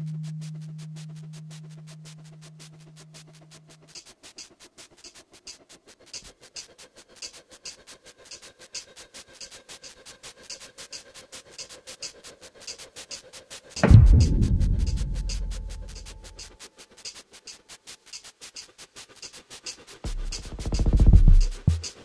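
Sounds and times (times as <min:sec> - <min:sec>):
low held tone: 0:00.0 - 0:03.8, 0:13.8 - 0:16.5
fast clock-like ticking: 0:03.9 - 0:16.5, 0:17.5 - 0:22.0.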